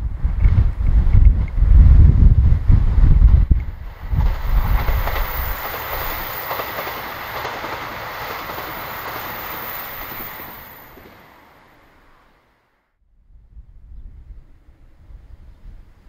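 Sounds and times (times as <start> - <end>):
wind buffeting microphone: 0.0 - 12.2, 13.2 - 16.0
train wheel and rail rush: 0.0 - 12.8
high wheel squeal: 8.6 - 11.3.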